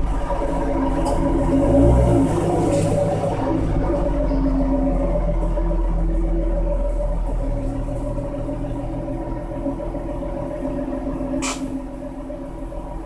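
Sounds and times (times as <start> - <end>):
car exhaust at low revs: 0.0 - 13.0
short sharp click: 11.4 - 11.7.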